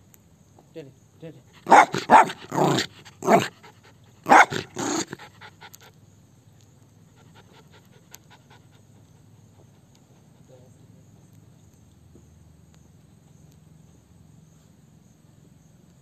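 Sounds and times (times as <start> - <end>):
dog panting: 1.5 - 6.0, 7.1 - 10.8
dog barking: 1.6 - 3.6, 4.2 - 5.1.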